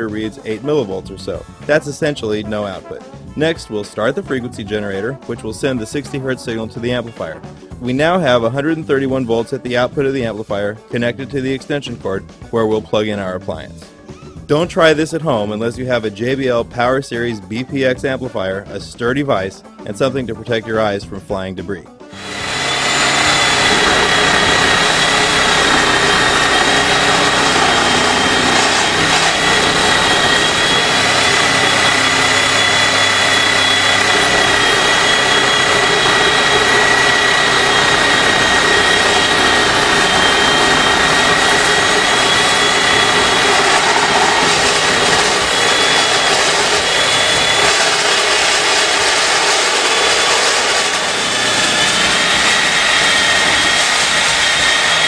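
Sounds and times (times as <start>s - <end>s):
high whine: 22.1s - 55.0s
reciprocating saw cutting metal: 22.1s - 55.0s.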